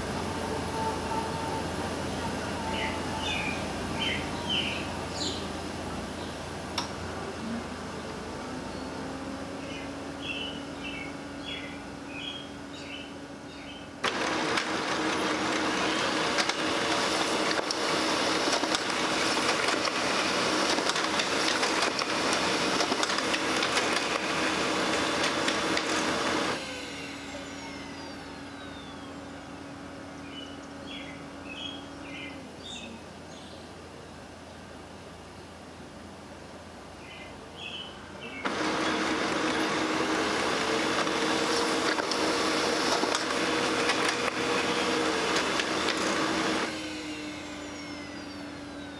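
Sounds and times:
printer motor hum: 0:00.0 - 0:32.6, 0:38.4 - 0:48.9
printer mechanism whirring: 0:06.6 - 0:32.2, 0:38.4 - 0:48.9.

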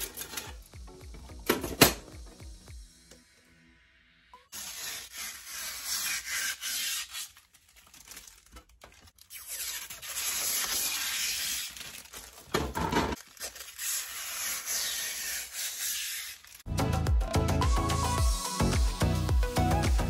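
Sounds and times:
plastic bag rustling and crinkling: 0:07.3 - 0:14.2.

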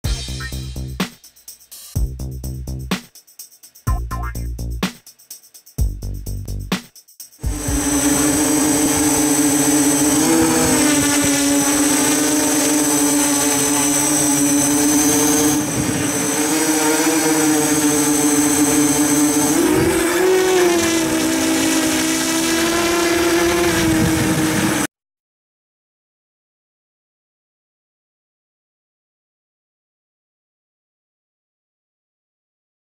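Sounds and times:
drone motors whining in flight: 0:07.4 - 0:24.9.

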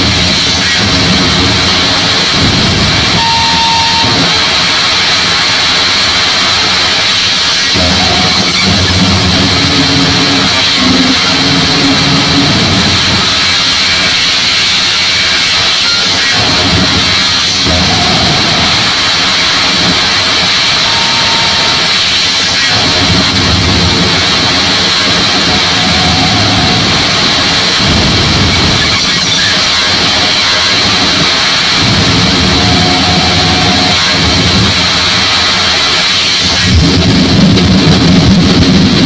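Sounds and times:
harsh hiss and static: 0:00.0 - 0:39.0
low-pitched noise layers: 0:00.0 - 0:39.0.

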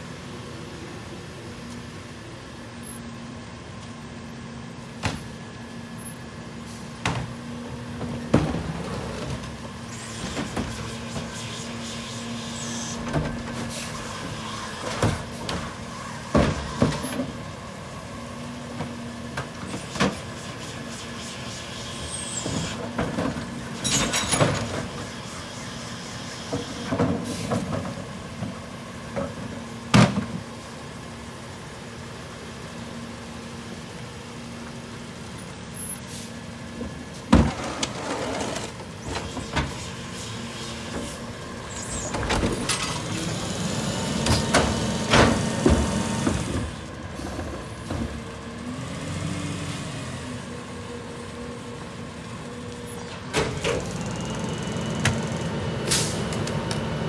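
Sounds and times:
garbage truck idling: 0:26.7 - 0:57.0.

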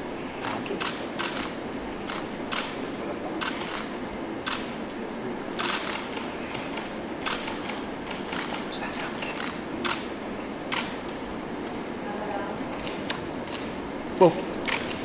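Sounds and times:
low room hum: 0:00.0 - 0:15.0
camera shutters clicking: 0:00.4 - 0:02.8, 0:03.4 - 0:04.7, 0:05.6 - 0:10.1, 0:10.7 - 0:11.0, 0:12.8 - 0:13.7, 0:14.6 - 0:15.0.

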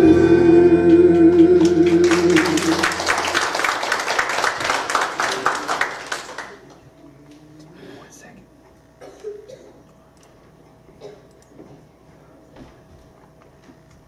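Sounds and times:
congregation applause: 0:01.6 - 0:06.8.

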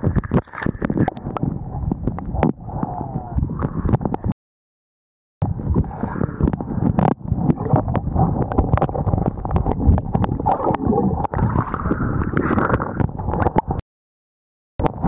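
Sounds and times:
muffled underwater sloshing: 0:05.4 - 0:13.8.

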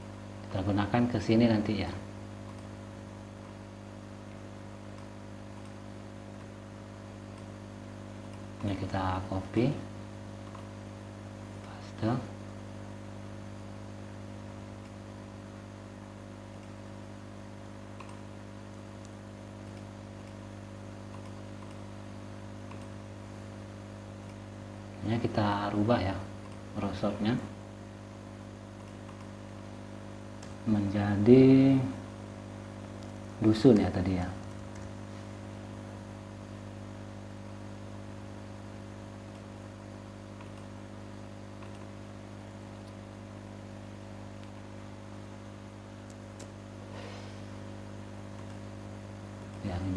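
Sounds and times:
electrical mains hum: 0:00.0 - 0:49.9
faint computer mouse clicks: 0:04.9 - 0:05.8, 0:18.0 - 0:18.3, 0:21.1 - 0:21.8, 0:22.6 - 0:23.0, 0:28.8 - 0:29.3, 0:40.4 - 0:40.7, 0:41.6 - 0:41.9
faint clicks: 0:18.0 - 0:18.3.

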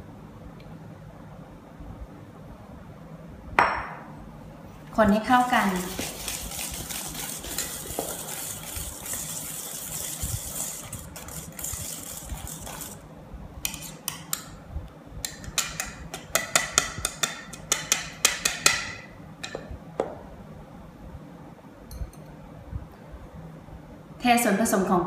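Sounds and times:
whisk clinking on metal bowl: 0:05.3 - 0:13.0, 0:13.7 - 0:14.5, 0:15.4 - 0:19.0
whisk swishing in batter: 0:05.3 - 0:13.0, 0:13.7 - 0:14.2.

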